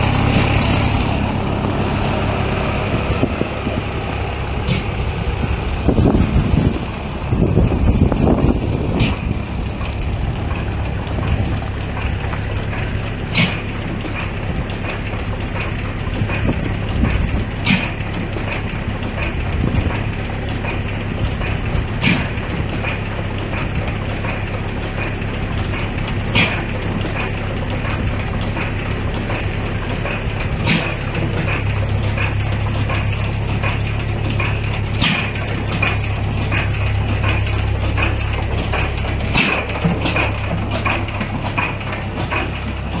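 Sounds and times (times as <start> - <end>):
low hum of flywheels: 0.0 - 43.0
stationary engine firing bangs: 7.4 - 20.1, 21.3 - 24.4, 25.7 - 27.0, 27.8 - 43.0.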